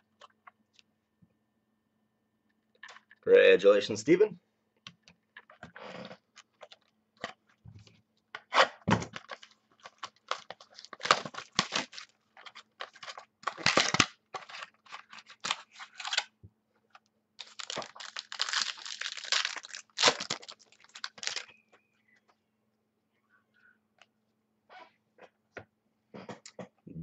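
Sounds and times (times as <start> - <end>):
card pack foil rustling and tearing: 9.1 - 16.3, 17.4 - 21.6.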